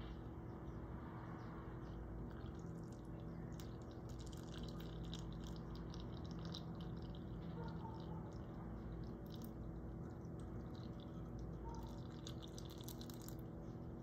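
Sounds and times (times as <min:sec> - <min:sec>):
fizzy crackle of bubbles: 0:02.3 - 0:13.4
liquid trickling and splashing: 0:02.3 - 0:13.5.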